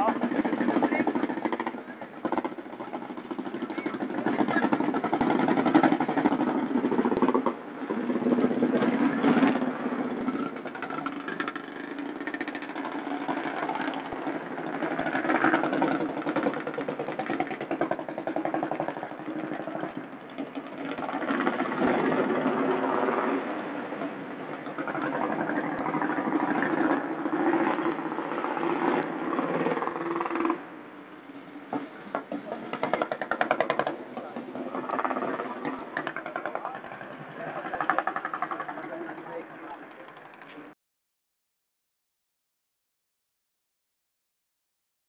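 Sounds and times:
people talking: 0:00.0 - 0:08.0, 0:24.5 - 0:27.9, 0:31.7 - 0:40.8
vehicle engine idling: 0:00.0 - 0:28.8, 0:29.6 - 0:40.8.

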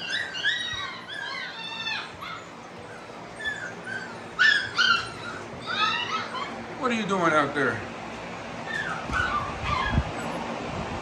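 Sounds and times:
puppies whining and yipping: 0:00.0 - 0:06.8, 0:08.6 - 0:11.0.

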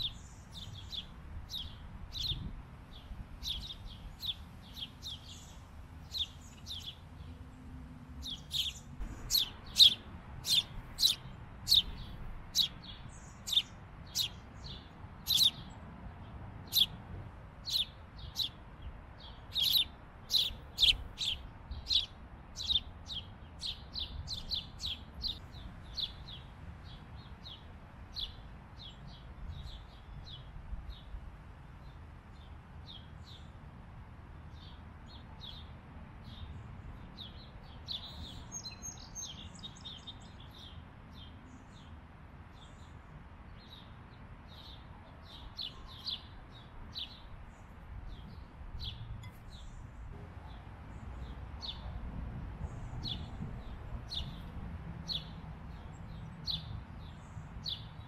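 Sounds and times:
small bird chirping: 0:08.2 - 0:15.7, 0:16.7 - 0:17.0, 0:17.6 - 0:18.6, 0:19.2 - 0:26.4.

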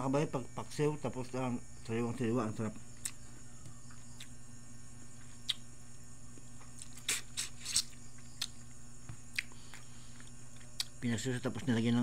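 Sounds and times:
steady low hum: 0:00.0 - 0:12.0
man chewing with mouth clicks: 0:03.0 - 0:04.4, 0:05.2 - 0:05.7, 0:06.3 - 0:11.0.

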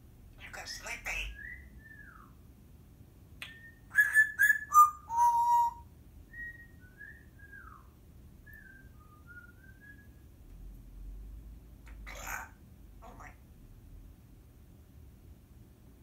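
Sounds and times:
parrot whistling: 0:01.3 - 0:02.3, 0:03.4 - 0:07.8.

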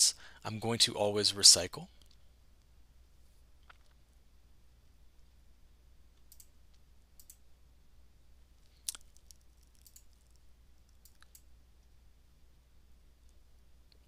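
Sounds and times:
low steady hum: 0:00.0 - 0:14.0
computer mouse and keyboard clicks: 0:09.3 - 0:11.5.

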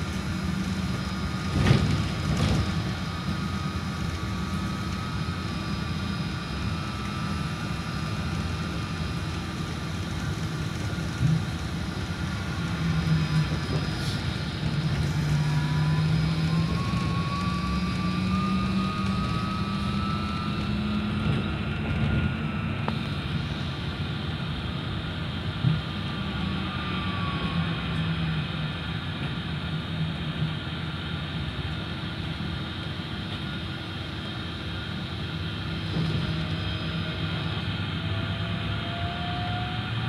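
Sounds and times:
road noise: 0:00.0 - 0:40.0
electric motor whine: 0:12.3 - 0:23.4.

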